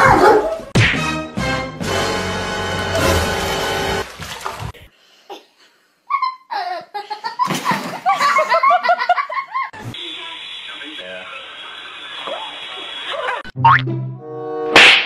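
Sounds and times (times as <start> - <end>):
water splashing in bathtub: 3.0 - 4.9.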